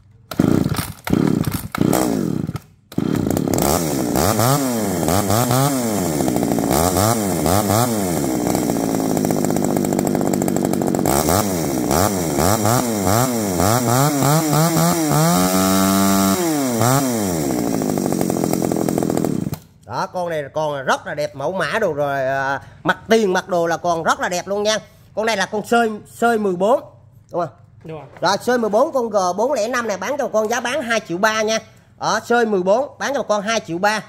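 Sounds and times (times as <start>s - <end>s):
chainsaw pull-started and revving: 0.2s - 19.8s.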